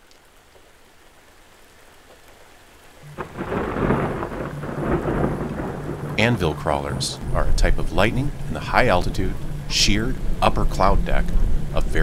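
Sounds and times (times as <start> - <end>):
faint steady hiss: 0.0 - 12.0
thunder crack and rumble: 3.0 - 12.0.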